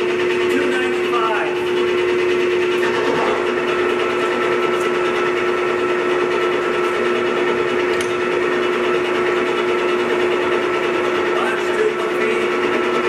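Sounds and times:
lathe whine: 0.0s - 13.0s.

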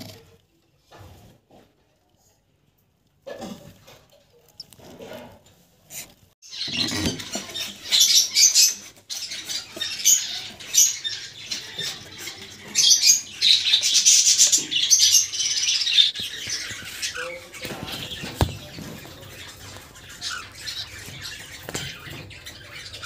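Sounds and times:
cage birds chirping: 0.0s - 23.0s.

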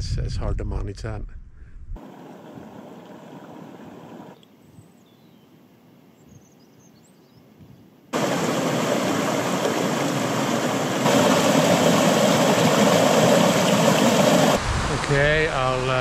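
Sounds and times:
stream rushing over rocks: 8.2s - 16.0s.

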